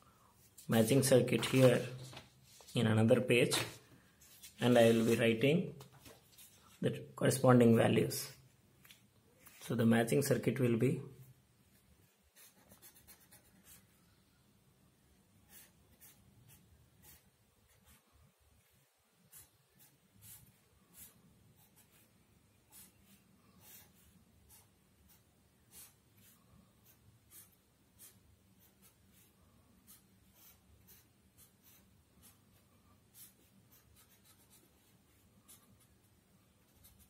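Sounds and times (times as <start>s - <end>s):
pen scratching on paper: 12.0s - 14.0s, 15.4s - 18.0s, 18.6s - 36.0s, 36.6s - 37.0s.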